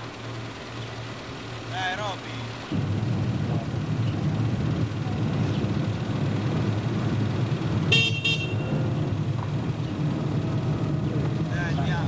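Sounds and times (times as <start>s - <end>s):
car rumbling on road: 0.0s - 12.0s
car horn toots: 7.8s - 9.0s.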